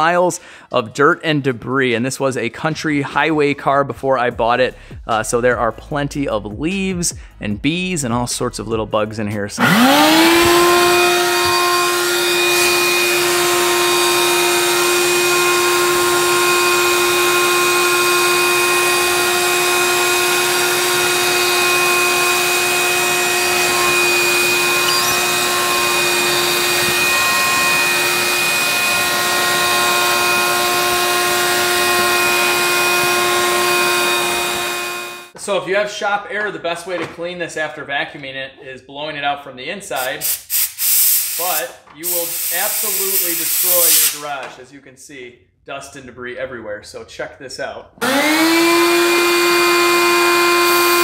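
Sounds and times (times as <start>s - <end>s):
vacuum sucking leaves and dirt: 9.6s - 35.3s, 48.0s - 51.0s
shop vacuum motor whine: 9.6s - 35.4s, 48.0s - 51.0s.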